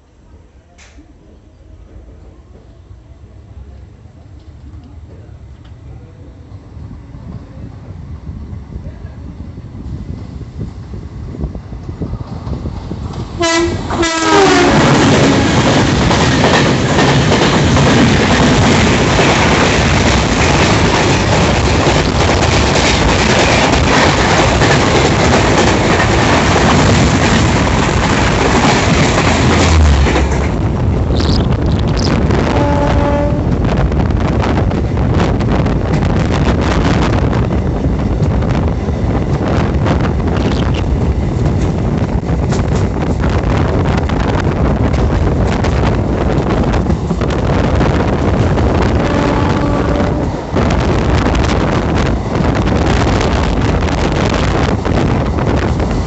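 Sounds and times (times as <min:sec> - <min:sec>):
train coaches rattling past: 0:11.9 - 0:33.8
wheels clacking over rail joints: 0:12.3 - 0:32.1
train horn blaring: 0:13.4 - 0:15.5, 0:32.3 - 0:33.7, 0:48.8 - 0:50.5
low rumble: 0:29.3 - 0:35.4.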